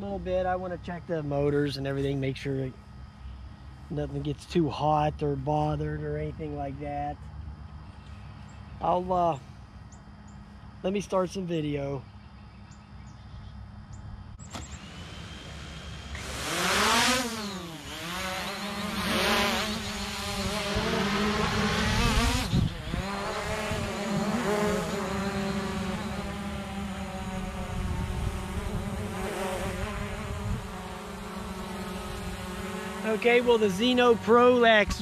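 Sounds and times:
drone propellers buzzing: 0:12.7 - 0:35.0.

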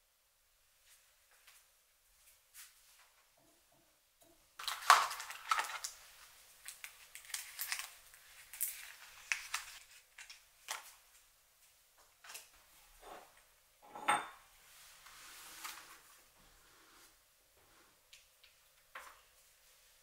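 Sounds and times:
paper packets rustling: 0:04.6 - 0:11.2.

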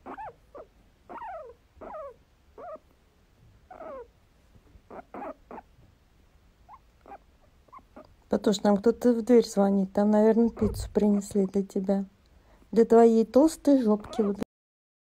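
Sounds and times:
guinea pig squeaking: 0:00.0 - 0:02.9, 0:03.6 - 0:04.1, 0:04.8 - 0:05.8, 0:06.6 - 0:08.6, 0:09.2 - 0:12.0, 0:13.1 - 0:14.5.

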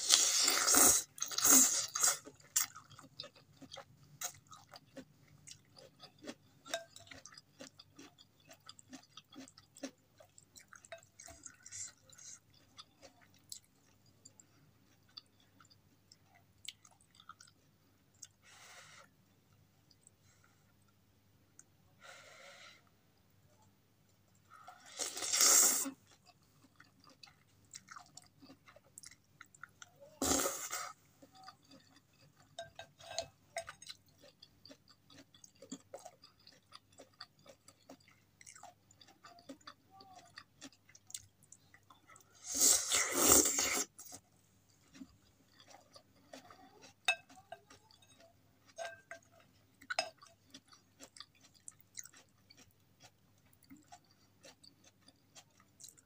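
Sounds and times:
soft chewing and mouth clicks: 0:00.0 - 0:21.8, 0:23.4 - 0:56.0
noodle slurps: 0:42.4 - 0:44.0.

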